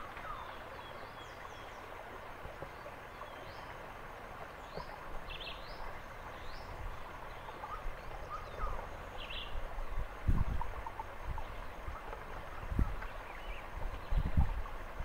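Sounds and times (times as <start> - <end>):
forest background hiss: 0.0 - 15.0
wind rumble on microphone: 6.4 - 15.0.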